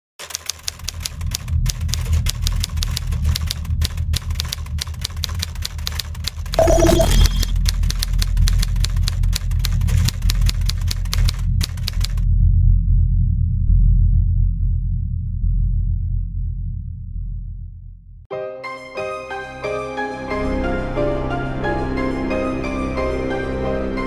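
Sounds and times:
typewriter keys clacking: 0.2 - 12.2
low rumbling drone: 0.7 - 18.3
short ringing tone: 6.6 - 7.6.

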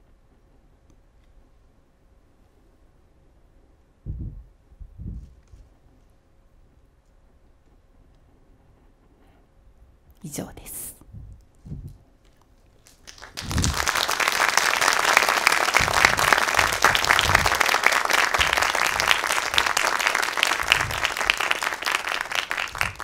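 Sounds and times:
audience applauding: 12.8 - 23.0.

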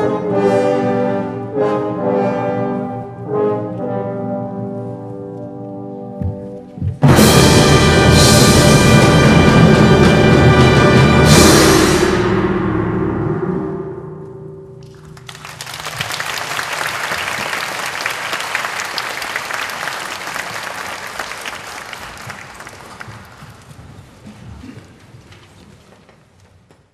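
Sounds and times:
audience applause: 14.9 - 24.8.

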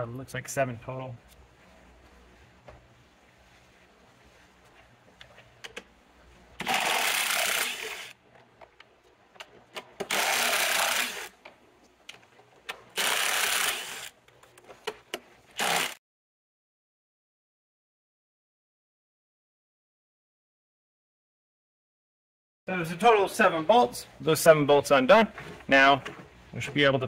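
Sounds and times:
cordless driver running: 6.6 - 8.2, 10.0 - 11.3, 12.9 - 14.1, 15.6 - 16.0.

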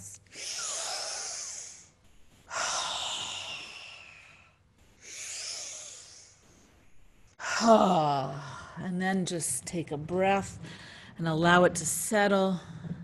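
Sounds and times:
woman breathing forcefully: 0.3 - 6.6, 10.6 - 11.2.

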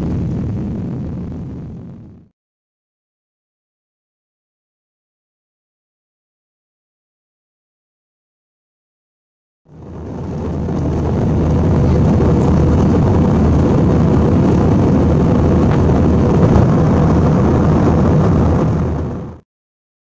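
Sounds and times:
aircraft engines and airflow rushing: 0.0 - 2.3, 9.7 - 19.4
low hum: 0.0 - 2.3, 9.7 - 19.4.

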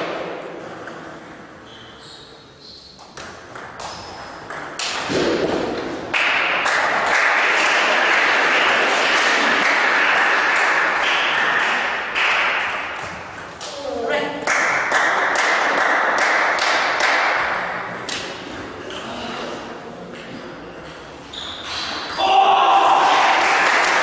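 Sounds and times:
applause: 6.1 - 12.7, 14.4 - 17.2, 23.1 - 24.0.

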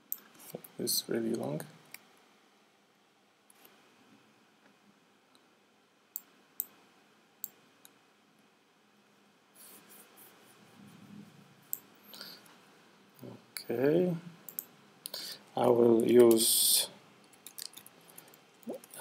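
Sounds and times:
computer mouse clicks: 14.5 - 15.2, 17.3 - 19.0.

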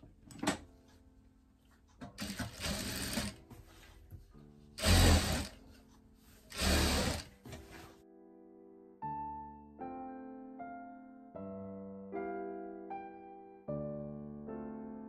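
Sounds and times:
sewing machine running: 2.2 - 3.4, 4.8 - 5.6, 6.5 - 7.3.

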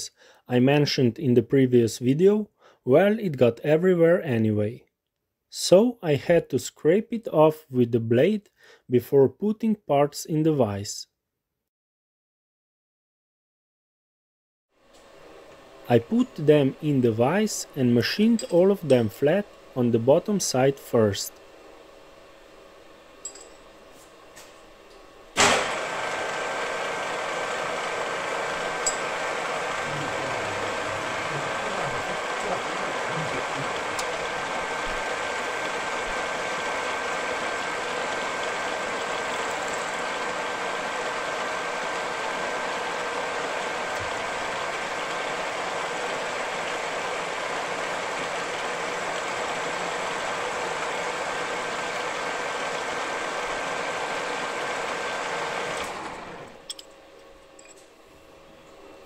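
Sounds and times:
milling machine cutting metal: 25.4 - 56.8.

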